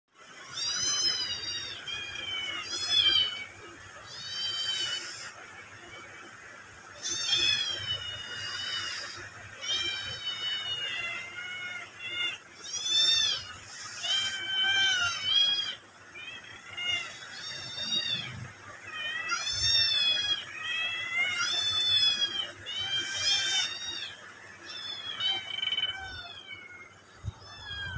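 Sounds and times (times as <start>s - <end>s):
cat meowing: 7.0s - 27.9s.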